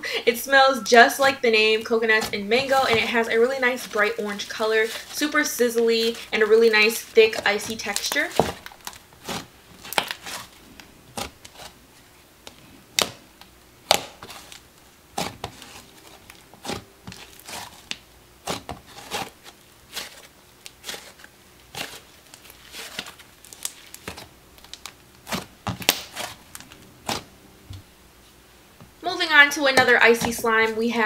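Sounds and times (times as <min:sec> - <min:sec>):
slime crackling and popping: 0:03.6 - 0:11.7, 0:12.9 - 0:27.3.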